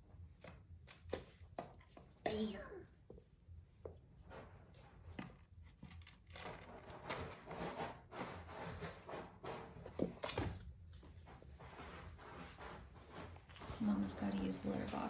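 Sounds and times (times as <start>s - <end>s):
kittens' paws scuffling on floor: 3.9s - 15.0s.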